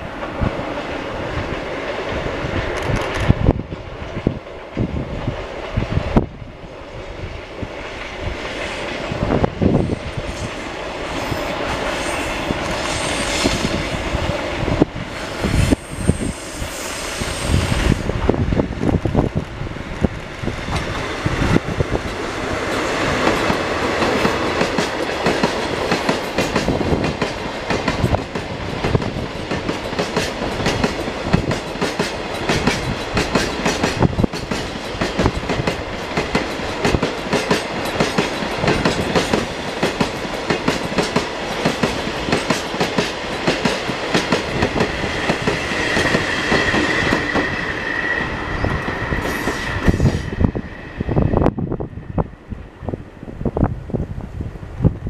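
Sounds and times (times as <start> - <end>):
train wheels clattering over rail joints: 20.6 - 47.8
high wheel squeal: 45.7 - 51.3.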